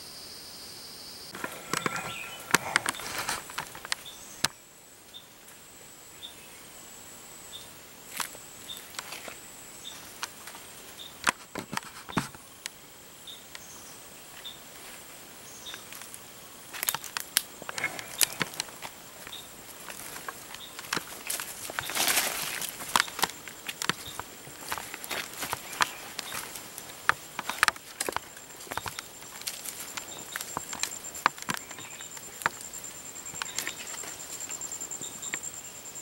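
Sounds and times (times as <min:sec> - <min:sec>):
high insect buzz: 0:00.0 - 0:36.0
brush rustling: 0:01.3 - 0:04.1, 0:14.3 - 0:34.7
leaves and twigs crackling underfoot: 0:01.3 - 0:04.6, 0:07.6 - 0:12.7, 0:13.5 - 0:35.6
faint regular ticks: 0:15.7 - 0:35.5.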